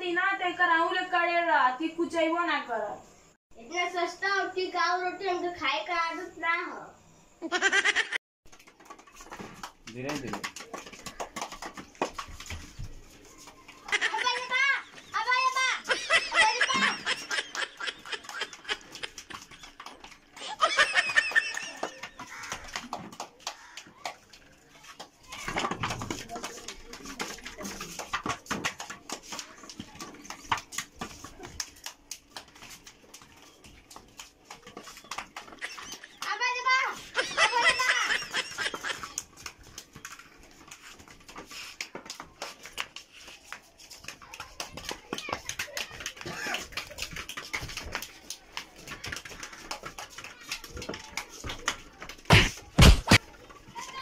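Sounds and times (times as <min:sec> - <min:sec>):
plastic ball kicked on concrete: 0:08.5 - 0:14.0, 0:21.2 - 0:36.2
footsteps: 0:08.5 - 0:54.0.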